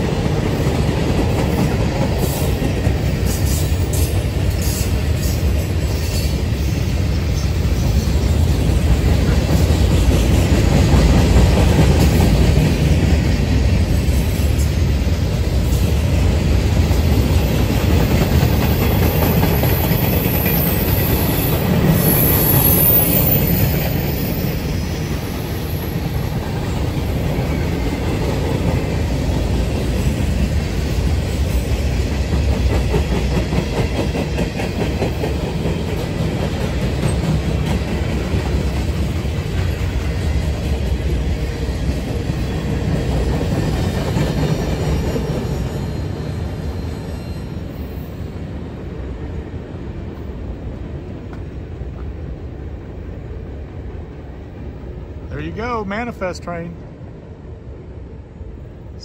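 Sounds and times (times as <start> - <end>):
clickety-clack over rail joints: 0.0 - 25.0, 26.0 - 47.0, 50.1 - 53.1
train wheels rumbling on rails: 0.0 - 59.0
high wheel squeal: 18.7 - 26.2, 44.5 - 48.3.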